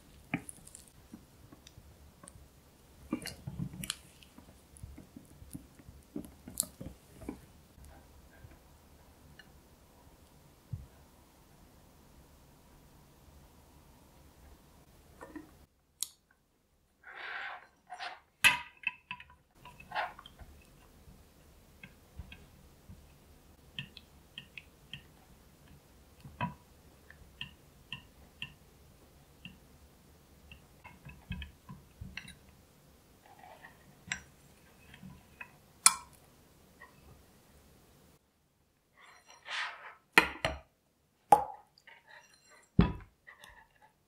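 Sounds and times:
spatula scraping glass bowl: 39.0 - 40.0, 42.0 - 42.8.

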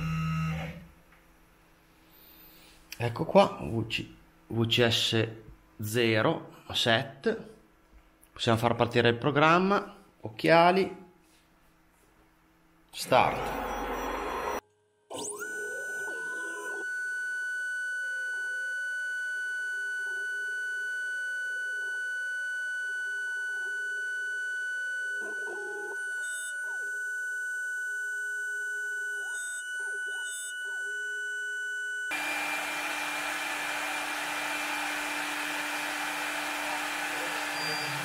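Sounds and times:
milling machine spindle whining: 22.8 - 38.0.

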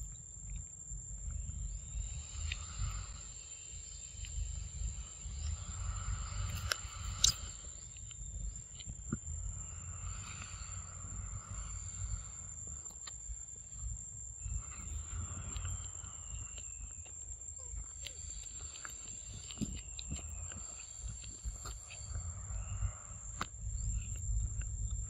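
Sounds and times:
insects whining and buzzing: 0.0 - 25.0
sharp clicks: 4.2 - 9.0
low rumble: 19.1 - 25.0.

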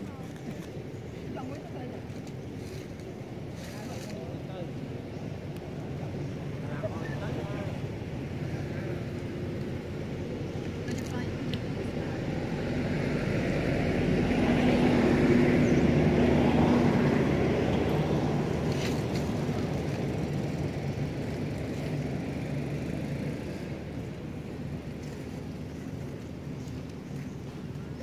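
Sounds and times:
passing vehicle engine hum: 0.7 - 28.0.

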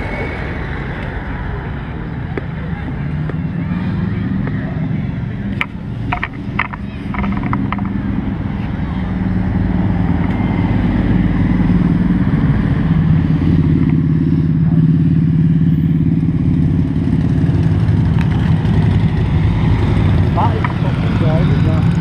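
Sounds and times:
motorcycle engine running at low revs: 9.3 - 22.0.

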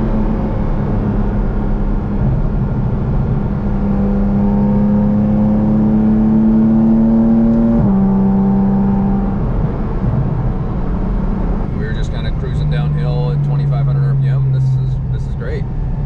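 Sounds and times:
car engine under load: 0.0 - 16.0.

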